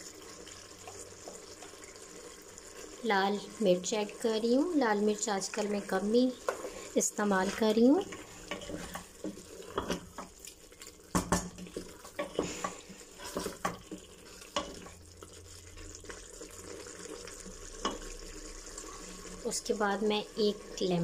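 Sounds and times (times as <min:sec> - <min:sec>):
faint sizzle of frying: 0:00.0 - 0:21.0
wooden spoon stirring and scraping: 0:00.0 - 0:21.0.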